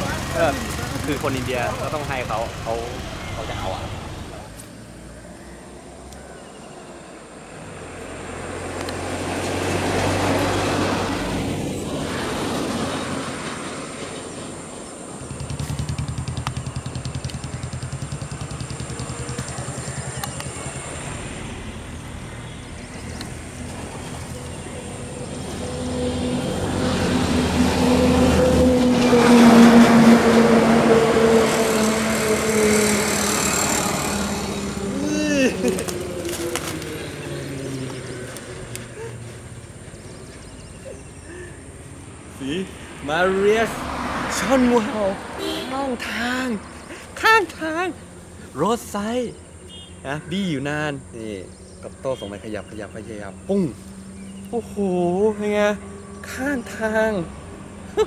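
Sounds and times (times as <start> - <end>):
loud vehicle passing: 0.0 - 6.1, 7.2 - 58.0
road traffic passing: 0.0 - 58.0
low engine drone: 13.0 - 41.7.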